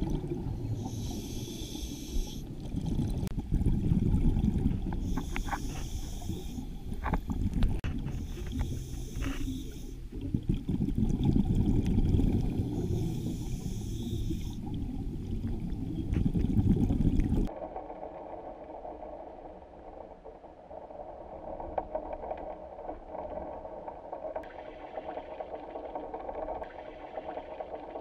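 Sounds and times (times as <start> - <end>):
steady underwater hiss: 0.0 - 2.8, 4.2 - 10.8, 12.0 - 17.6
underwater wash of moving water: 0.0 - 28.0
faint ticks: 4.9 - 10.0.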